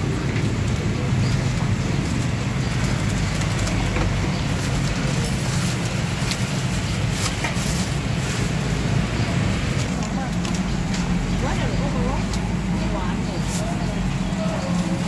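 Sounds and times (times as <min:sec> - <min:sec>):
paper wrapping rustling: 0:02.9 - 0:09.0.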